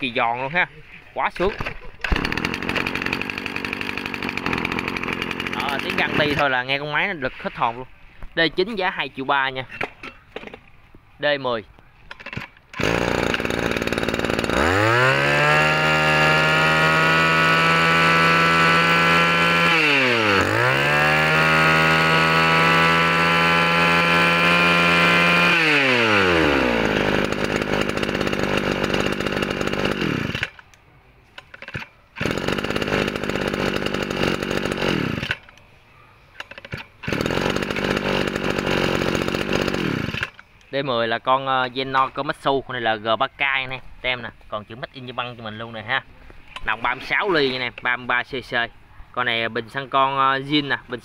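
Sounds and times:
brush cutter engine revving: 0:01.2 - 0:07.6, 0:12.2 - 0:30.7, 0:31.4 - 0:35.6, 0:36.4 - 0:40.5.

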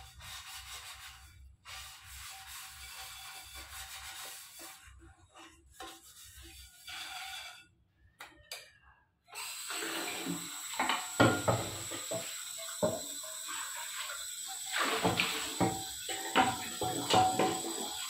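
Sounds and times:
scrubbing a pan: 0:00.0 - 0:07.7, 0:09.9 - 0:18.0
tap water running into pan: 0:09.4 - 0:18.0
pan clunking against sink: 0:10.9 - 0:12.2, 0:15.0 - 0:17.8.

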